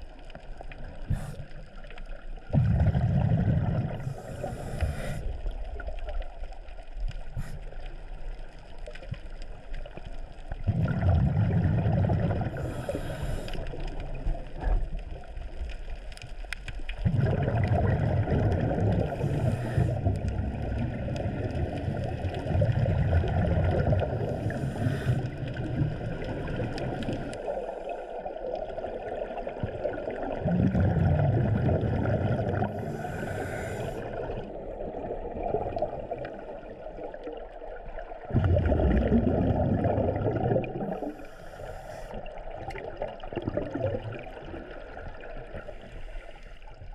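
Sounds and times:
bubbling exhalation: 2.5 - 4.3, 10.6 - 13.0, 17.0 - 27.2, 30.1 - 36.3, 38.2 - 41.2, 42.6 - 44.8
regulator inhalation hiss: 4.0 - 5.4, 12.6 - 13.6, 24.4 - 25.3, 32.8 - 34.2, 41.1 - 42.2.

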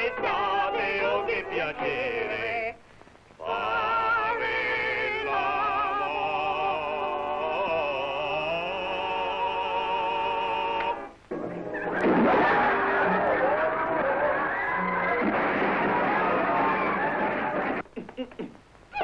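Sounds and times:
man singing with vibrato: 0.0 - 2.8, 3.4 - 11.1.

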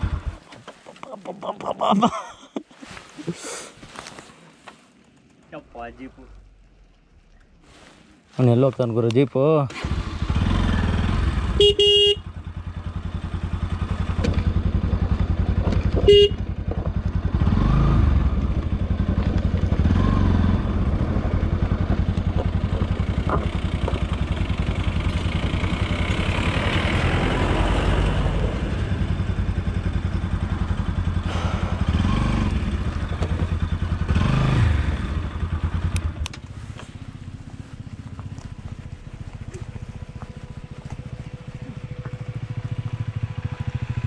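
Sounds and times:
motorcycle engine running: 0.0 - 0.4, 9.9 - 44.0.

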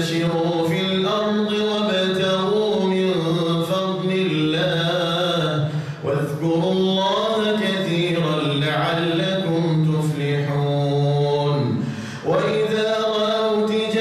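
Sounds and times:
man chanting recitation: 0.0 - 14.0.

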